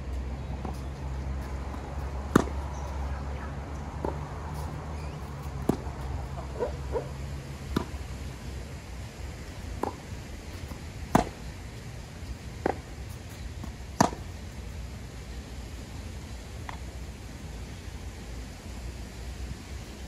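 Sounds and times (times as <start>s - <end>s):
steady low rumble: 0.0s - 20.0s
tennis ball struck by rackets: 1.4s - 3.1s, 4.0s - 8.6s, 9.7s - 11.5s, 12.6s - 13.0s, 13.6s - 14.3s.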